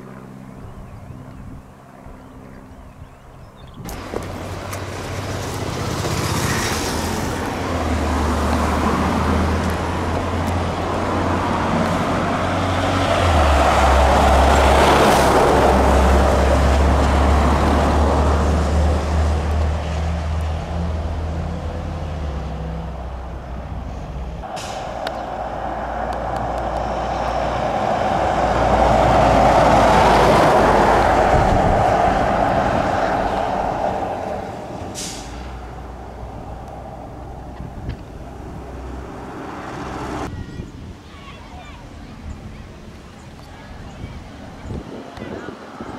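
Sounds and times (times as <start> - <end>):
fire trucks passing: 0.0 - 2.2, 3.9 - 40.3
sharp hiss: 24.4 - 27.3, 34.9 - 35.7.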